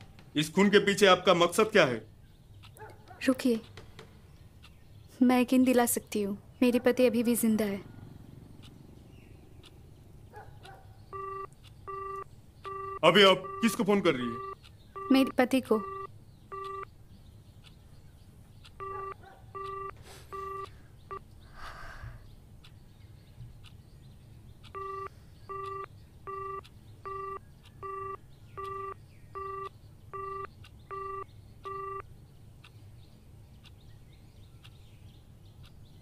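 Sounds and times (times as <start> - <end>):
phone keypad beeps: 11.1 - 16.9, 18.7 - 21.2, 24.7 - 32.1.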